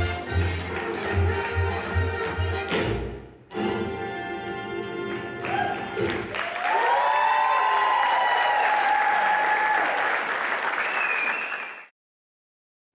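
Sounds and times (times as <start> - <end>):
audience applauding and cheering: 0.0 - 2.4, 5.1 - 11.9.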